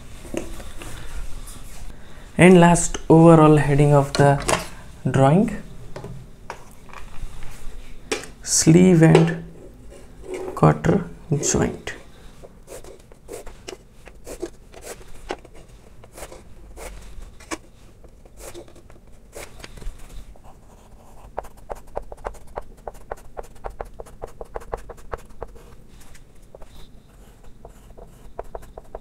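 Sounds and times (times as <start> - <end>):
chalk tapping and scraping on blackboard: 20.5 - 29.0.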